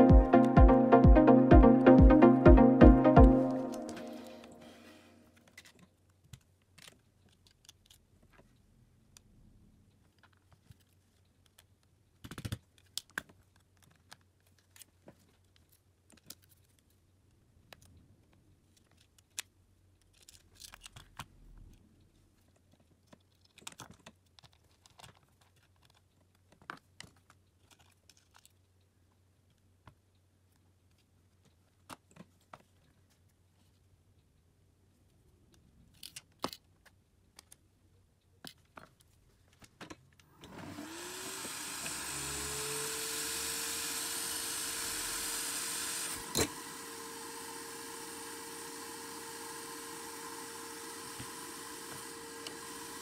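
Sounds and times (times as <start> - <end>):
small tool clicks and scrapes: 22.5 - 28.6.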